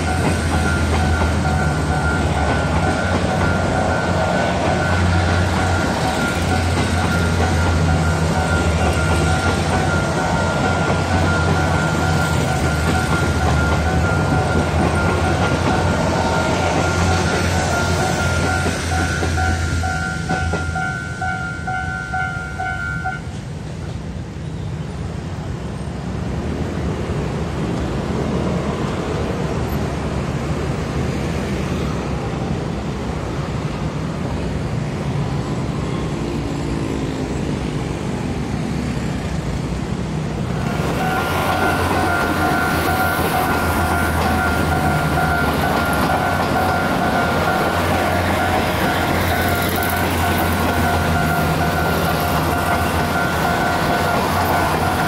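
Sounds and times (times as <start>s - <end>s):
level-crossing warning bell: 0.0s - 23.5s, 40.2s - 55.0s
diesel train passing: 0.0s - 55.0s
electric train passing: 0.0s - 55.0s
scooters and cars moving off: 34.3s - 55.0s.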